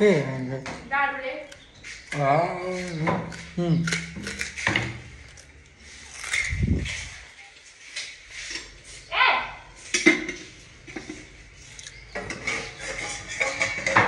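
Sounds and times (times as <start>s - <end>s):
dishes and utensils clinking: 9.8s - 11.4s, 12.0s - 14.0s.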